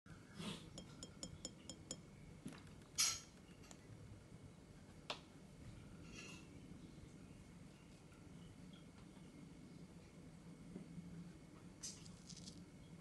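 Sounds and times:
glass clinking: 0.8 - 2.1.

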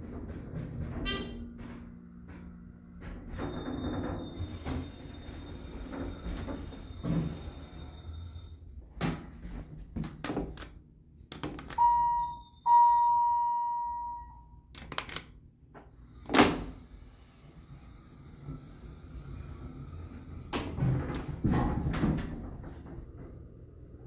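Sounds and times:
elevator doors sliding and knocking: 0.0 - 10.3, 16.5 - 24.0
elevator ding chime: 11.8 - 14.6.

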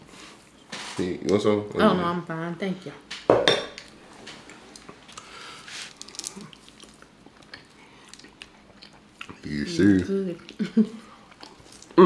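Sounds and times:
wet chewing: 3.8 - 12.0.

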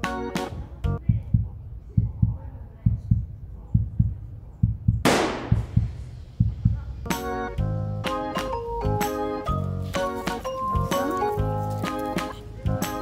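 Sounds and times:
heartbeat thumps: 0.5 - 7.8.

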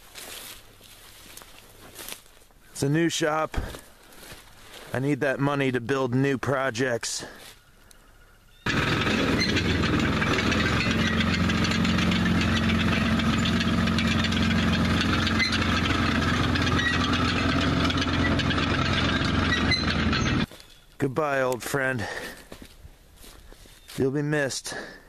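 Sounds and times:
tracked motorcycle engine running: 8.6 - 20.5.

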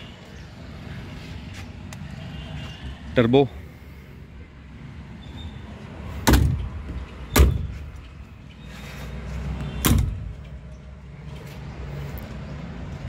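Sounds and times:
metal doors banging shut: 6.2 - 6.7, 7.3 - 7.9, 9.8 - 10.5.

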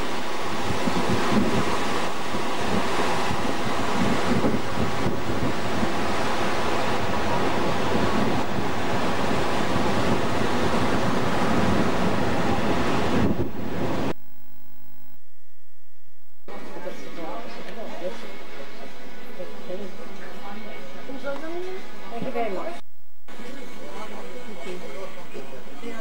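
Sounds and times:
wind buffeting microphone: 0.0 - 14.1.

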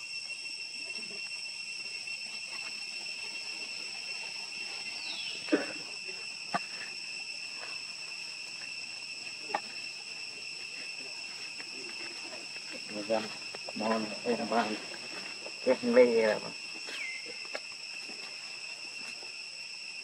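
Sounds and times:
high-pitched insect chorus: 0.0 - 20.0.

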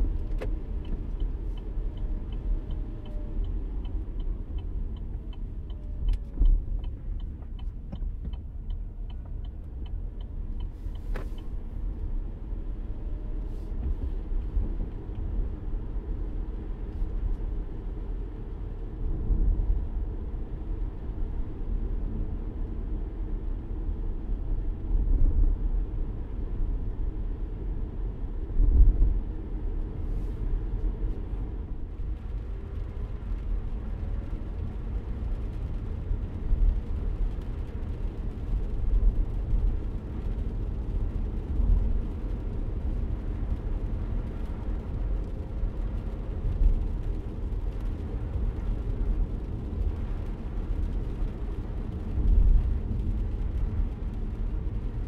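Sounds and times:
turn signal ticking: 0.0 - 12.6.

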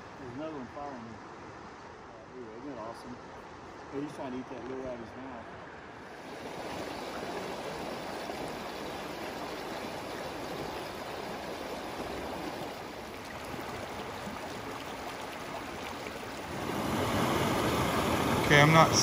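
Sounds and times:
river flowing over stones: 6.0 - 19.0.

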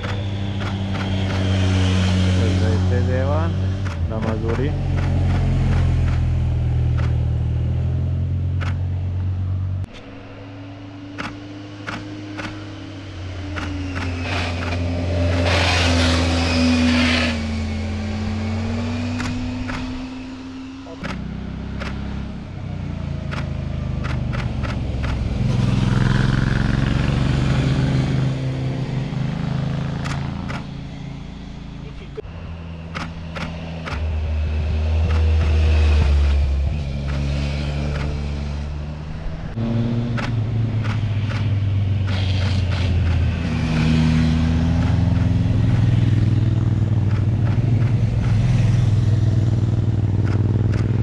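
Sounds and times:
sharp clicks: 0.0 - 1.5, 3.8 - 7.3, 8.6 - 10.1, 11.1 - 12.6, 13.5 - 15.5, 19.1 - 20.0, 21.0 - 22.1, 23.3 - 25.3, 30.0 - 30.8, 32.9 - 34.1, 37.0 - 37.3, 37.9 - 38.2, 40.1 - 44.0, 44.7 - 46.0, 47.0 - 48.8, 50.2 - 51.0
vehicles passing by: 0.0 - 51.0.

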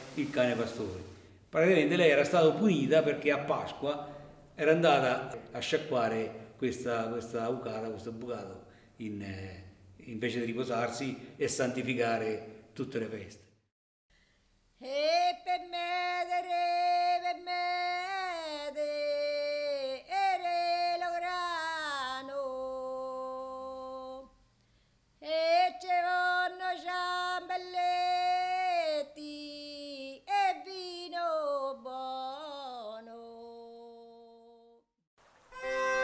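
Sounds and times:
woman singing unaccompanied: 14.8 - 24.4, 25.2 - 34.8.

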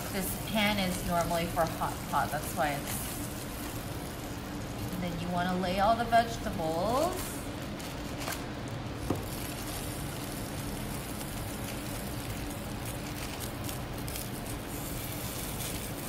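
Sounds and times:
background hiss and hum: 0.0 - 16.0
plastic bag crinkling: 6.3 - 16.0.

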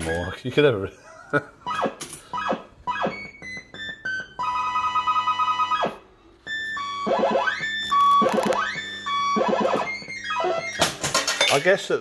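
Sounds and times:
warbling electronic tones: 6.8 - 10.8.

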